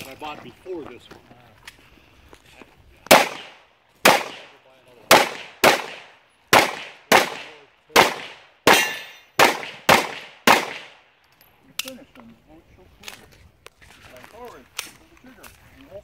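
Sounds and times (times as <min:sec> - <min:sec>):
handgun shots echoing: 0:03.1 - 0:11.0.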